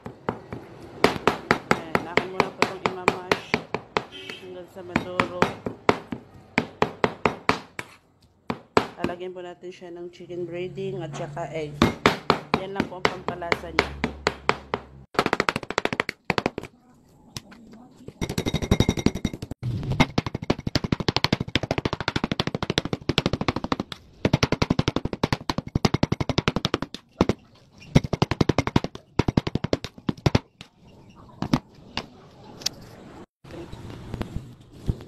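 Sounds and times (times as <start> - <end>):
knife chopping on wooden board: 0.0 - 9.0, 11.8 - 16.7.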